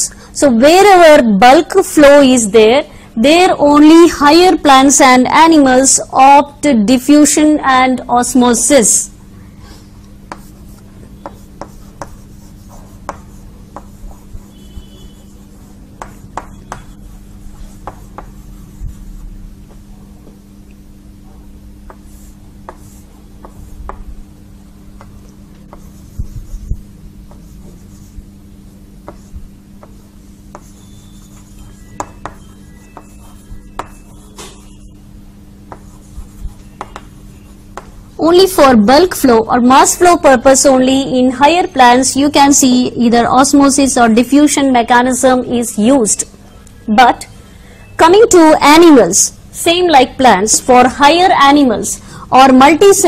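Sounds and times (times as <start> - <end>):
steady low hum: 0.0 - 53.0
chalk tapping and scratching: 10.2 - 19.9, 21.8 - 24.1, 25.0 - 28.2, 29.0 - 34.9, 35.7 - 38.0.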